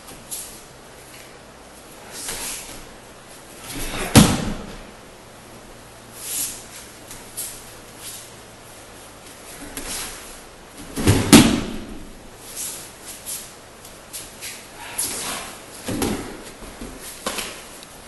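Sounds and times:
body thudding onto padded mat: 0:03.7 - 0:04.9, 0:10.8 - 0:12.1, 0:15.8 - 0:17.6.

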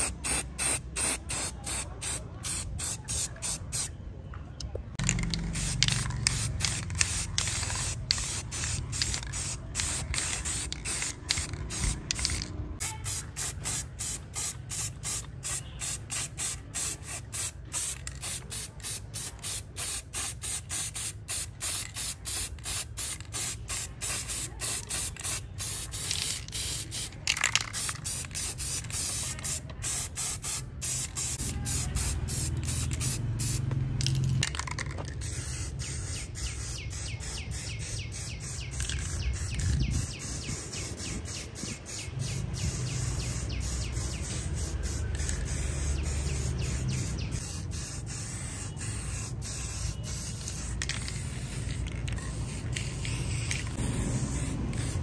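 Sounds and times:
spray paint can hissing: 0:00.0 - 0:04.0, 0:05.0 - 0:55.0.

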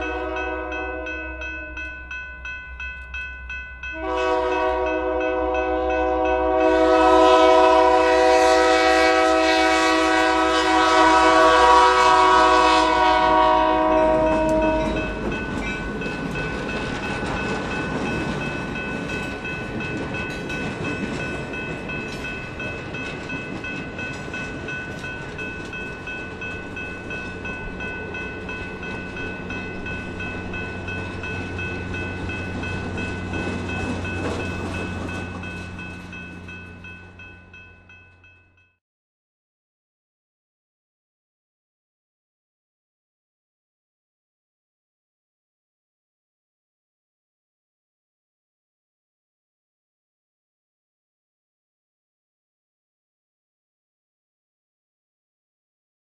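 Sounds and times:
locomotive air horn: 0:00.0 - 0:01.7, 0:04.0 - 0:15.0
crossing bell ringing: 0:00.0 - 0:38.8
train cars rumbling over rails: 0:03.8 - 0:37.9.

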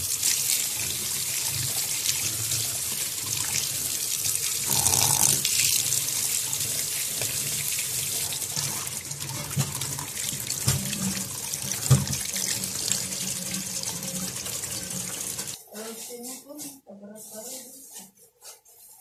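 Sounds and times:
tap water splashing into sink: 0:01.5 - 0:15.6.

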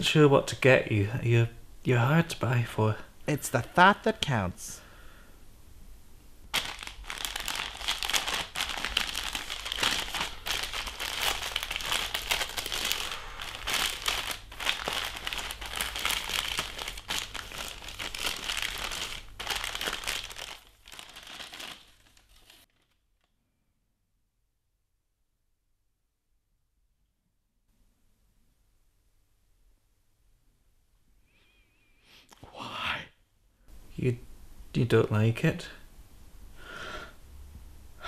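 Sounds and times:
wrapping paper crinkling and tearing: 0:06.5 - 0:23.3.

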